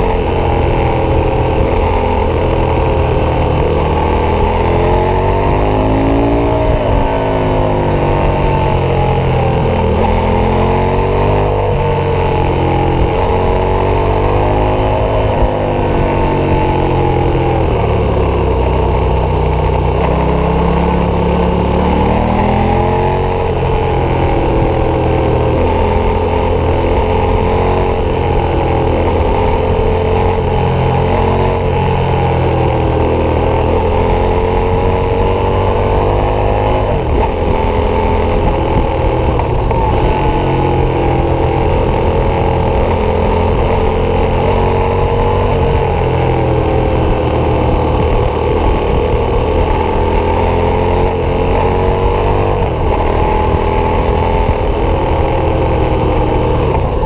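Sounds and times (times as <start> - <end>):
motorcycle engine revving: 0.0 - 57.0
wind noise: 0.0 - 57.0.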